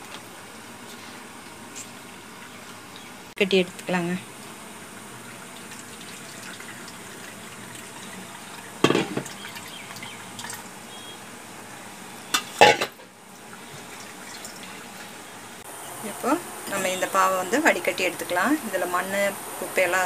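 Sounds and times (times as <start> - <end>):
steel utensils clanking: 12.3 - 13.1.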